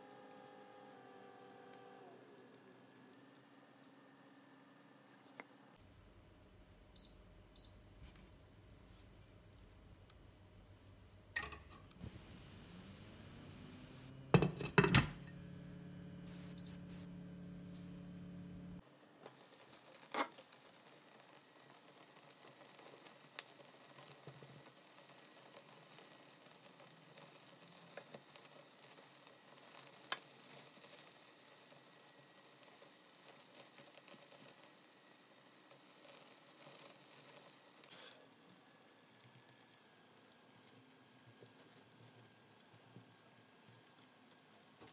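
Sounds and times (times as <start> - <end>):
low steady hum: 5.8 - 19.2
omelette sizzling in oil: 12.0 - 14.9, 19.2 - 44.9.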